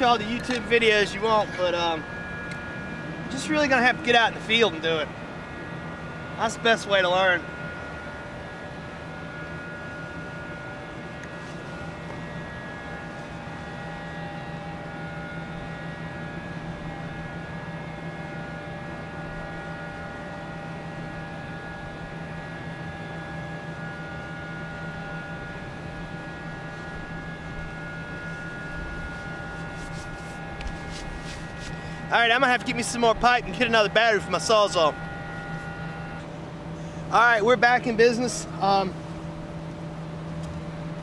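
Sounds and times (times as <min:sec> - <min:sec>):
mechanical hum with high tones: 0:00.0 - 0:41.0.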